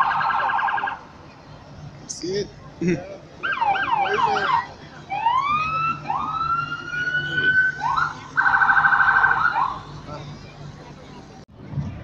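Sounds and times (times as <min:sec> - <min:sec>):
electronic siren: 0:03.4 - 0:09.8.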